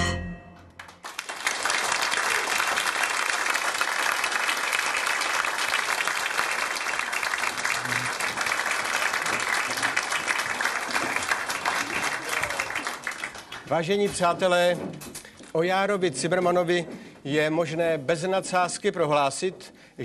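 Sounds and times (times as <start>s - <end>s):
audience applauding: 0.7s - 14.1s.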